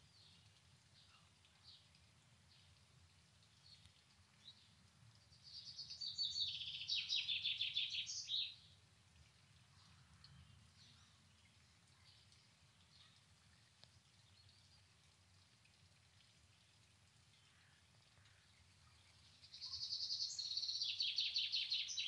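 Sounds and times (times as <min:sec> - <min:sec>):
songbird singing rapid notes: 0:05.4 - 0:08.6, 0:18.9 - 0:22.0
low steady background rumble: 0:08.6 - 0:19.7
faint bird chirps: 0:17.4 - 0:22.0.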